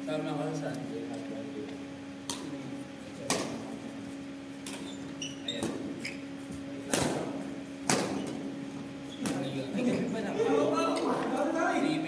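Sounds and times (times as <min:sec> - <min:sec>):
steady low hum: 0:00.0 - 0:12.0
rackets hitting shuttlecock: 0:03.2 - 0:03.8, 0:06.9 - 0:08.5
shoes squeaking on court: 0:03.4 - 0:06.7, 0:08.1 - 0:10.0.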